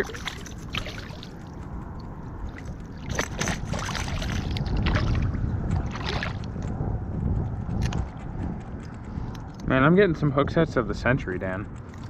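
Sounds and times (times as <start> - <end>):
water sloshing and splashing: 0.0 - 6.6
low rumble: 0.0 - 12.0.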